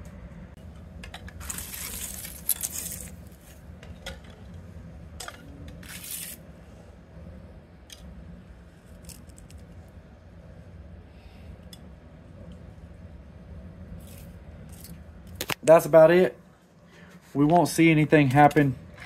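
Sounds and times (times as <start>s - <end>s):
metal strips clattering in glass jar: 1.4s - 3.1s.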